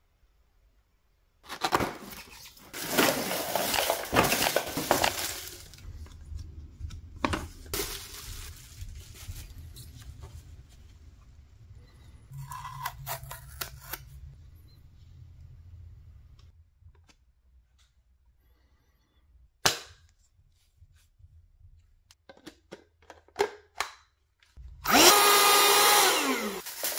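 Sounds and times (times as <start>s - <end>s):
packaging rustling and tearing: 1.5s - 6.2s, 7.5s - 10.2s, 26.1s - 26.9s
plastic parts clicking and knocking: 22.2s - 24.1s.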